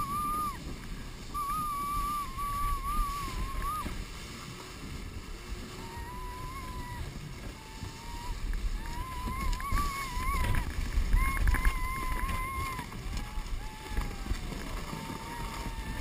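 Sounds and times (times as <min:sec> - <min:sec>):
hull sliding on snow: 0:00.0 - 0:16.0
snowmobile engine whining: 0:00.0 - 0:16.0
wind on microphone: 0:00.0 - 0:16.0.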